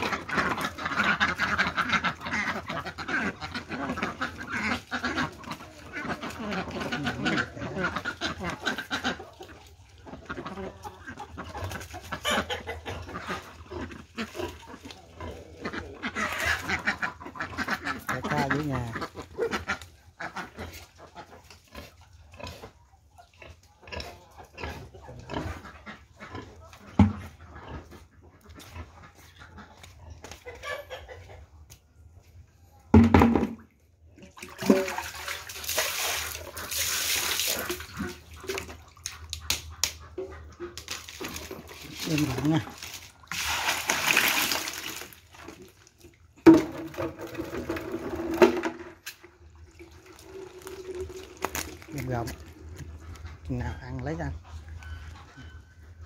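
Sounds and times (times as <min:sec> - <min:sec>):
pig grunting: 0:00.0 - 0:09.3, 0:10.3 - 0:22.8, 0:23.4 - 0:29.1
water and fish splashing: 0:00.0 - 0:31.1, 0:33.0 - 0:56.0.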